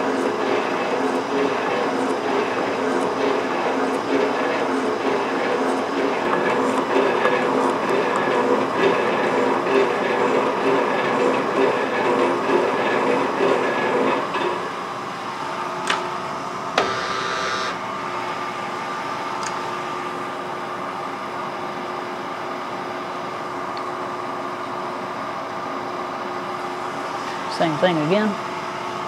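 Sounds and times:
machine hum: 13.1s - 19.2s.

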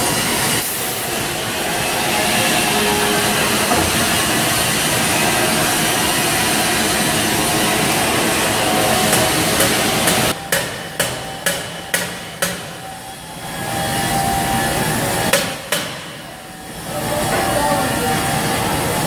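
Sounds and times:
shop fans running: 0.0s - 19.0s
hammer striking metal: 0.6s - 6.2s, 8.8s - 12.9s, 15.3s - 16.3s.

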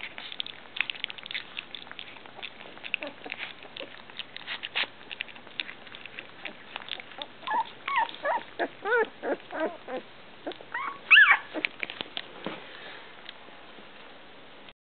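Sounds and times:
puppies whimpering: 0.0s - 11.9s
puppies lapping food: 0.0s - 13.4s.

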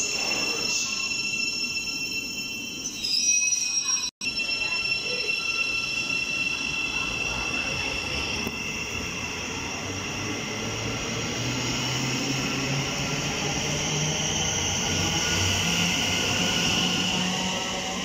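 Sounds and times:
electric train whine and hum: 4.4s - 18.0s.

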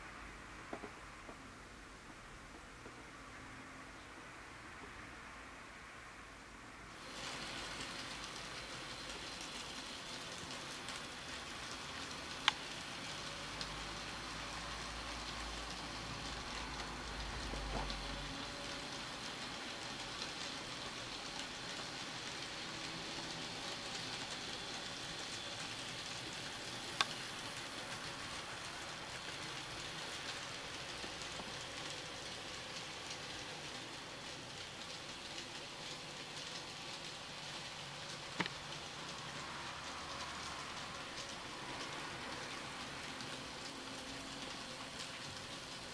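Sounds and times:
model train wheels rattling: 15.1s - 45.9s.

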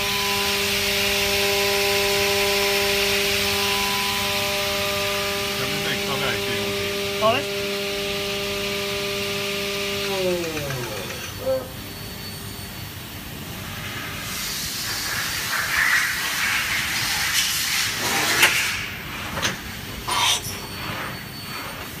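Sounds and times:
machine spindles whining: 0.0s - 13.8s
hissing machine noise: 0.0s - 22.0s.

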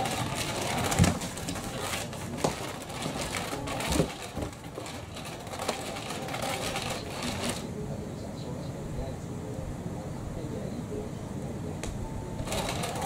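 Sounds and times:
motorised cat toy whirring: 0.0s - 7.7s, 12.4s - 13.0s.

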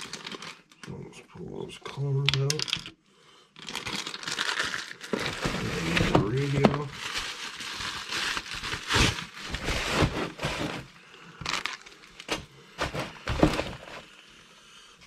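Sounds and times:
plastic packaging crinkling: 0.0s - 1.0s, 3.6s - 14.0s.

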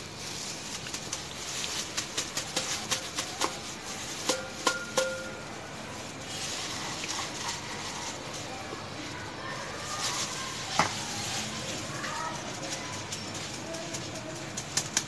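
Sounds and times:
metal bowl tapping on strainer: 4.3s - 5.4s.

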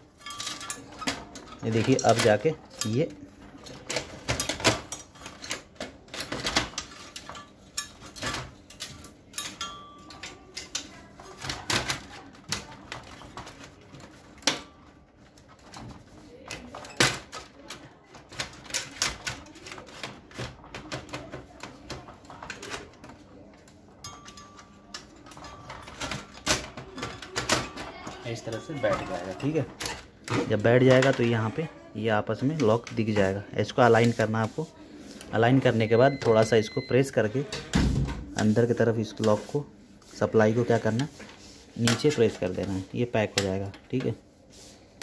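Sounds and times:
clicks and clatter of printer parts: 0.2s - 31.5s.

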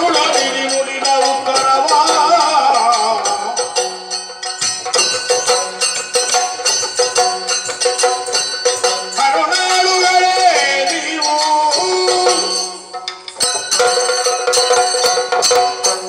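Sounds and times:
hand cymbals clashing: 0.0s - 16.0s
jingling ankle bells: 0.0s - 16.0s
hand drum strokes: 4.6s - 10.2s.

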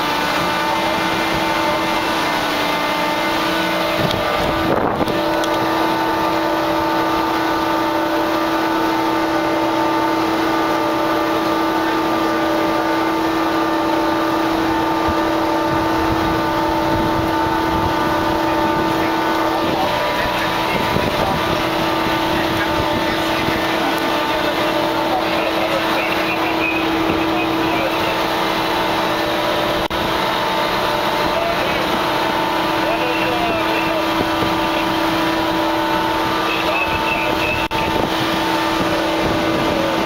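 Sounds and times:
ship machinery hum: 0.0s - 40.0s
wind on microphone: 3.6s - 5.8s, 14.6s - 24.1s, 34.0s - 40.0s.

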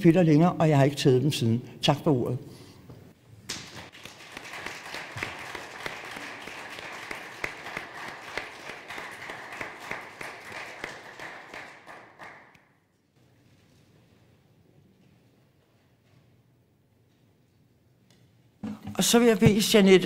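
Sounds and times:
audience applauding: 3.5s - 12.6s.

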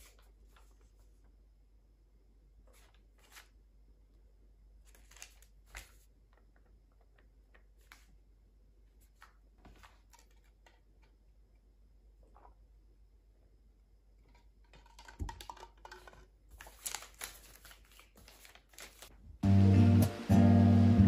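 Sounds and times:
paper rustling: 0.0s - 1.3s, 2.6s - 3.6s, 4.8s - 8.2s, 8.9s - 11.2s, 15.9s - 19.2s.

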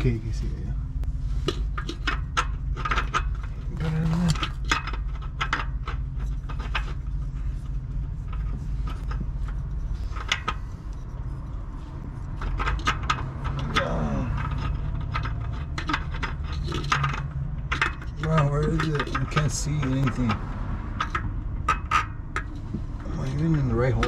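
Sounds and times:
low steady rumble: 0.0s - 24.0s
metallic clicks and scrapes of oil filter: 0.0s - 24.0s.

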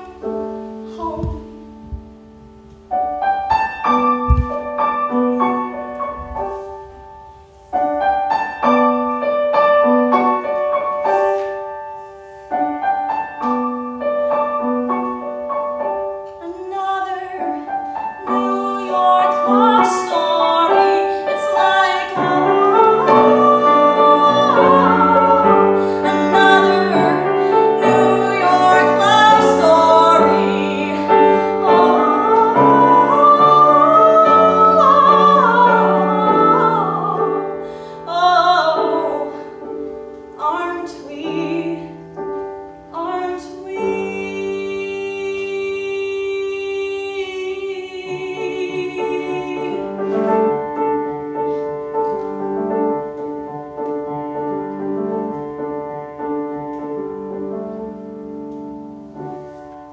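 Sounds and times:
woman singing: 0.0s - 2.0s, 16.2s - 39.8s, 40.4s - 42.2s, 42.9s - 50.8s
grand piano accompaniment: 0.0s - 59.9s.

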